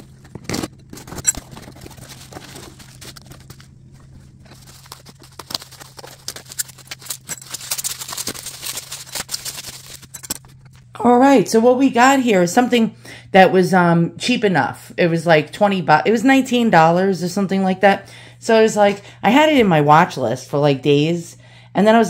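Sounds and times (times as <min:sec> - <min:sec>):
bubble wrap crinkling: 0:00.0 - 0:10.8
steady low hum: 0:00.0 - 0:22.0
cardboard box handling: 0:00.2 - 0:10.0.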